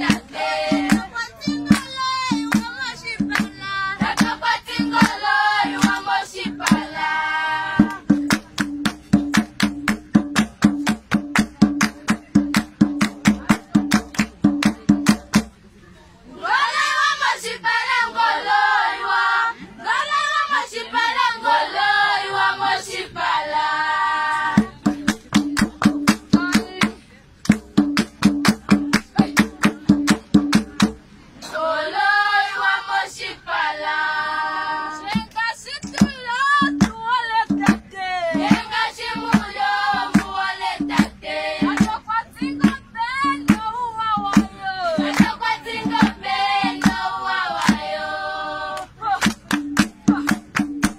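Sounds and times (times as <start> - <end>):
women singing unaccompanied: 0.0 - 9.4, 16.3 - 27.1, 27.8 - 30.6, 31.4 - 50.9
sharp percussive beats: 0.0 - 15.6, 24.2 - 31.1, 35.1 - 48.0, 48.7 - 50.9.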